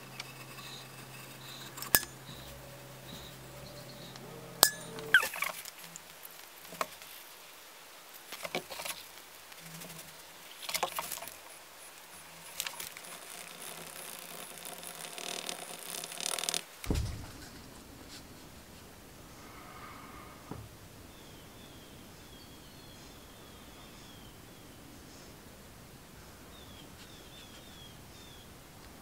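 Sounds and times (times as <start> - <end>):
wooden stick scraping plastic cup: 0.0 - 2.6, 9.7 - 16.7
low thump: 16.8 - 18.5.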